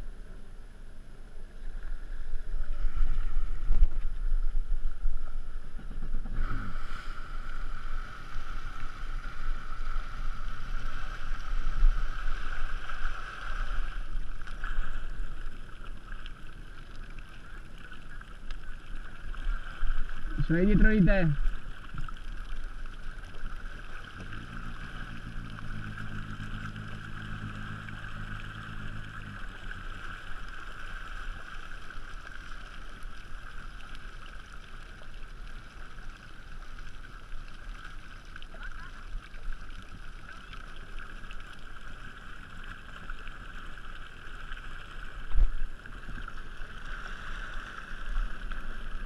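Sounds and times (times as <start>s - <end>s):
low hum: 0.0s - 49.0s
muffled watercraft engine: 0.0s - 49.0s
water noise: 0.0s - 49.0s
wind noise: 1.9s - 15.5s.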